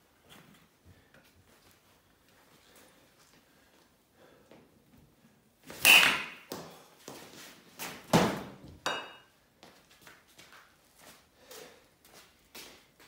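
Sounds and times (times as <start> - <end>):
bat striking ball: 5.8 - 6.6.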